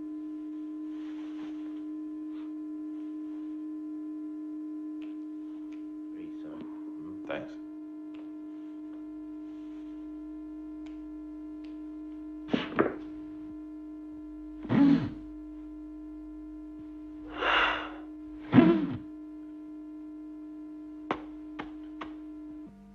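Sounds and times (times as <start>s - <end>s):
steady hum: 0.0s - 22.9s.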